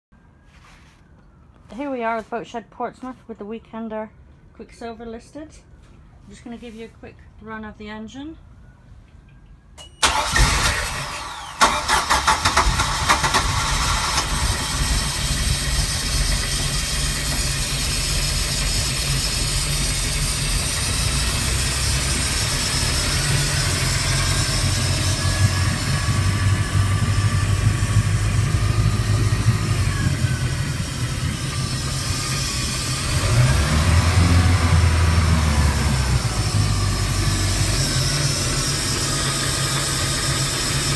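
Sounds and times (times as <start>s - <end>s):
boat engine idling and revving: 12.4s - 40.9s.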